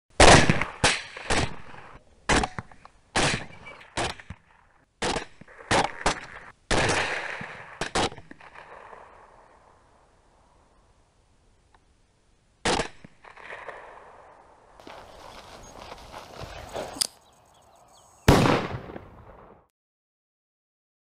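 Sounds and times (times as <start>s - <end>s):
rifle shots echoing: 18.2s - 19.6s.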